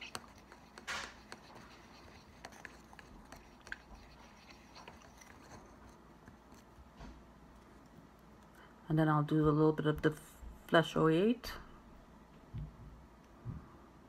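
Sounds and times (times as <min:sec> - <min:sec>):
brush scratching in jar: 0:00.0 - 0:06.7.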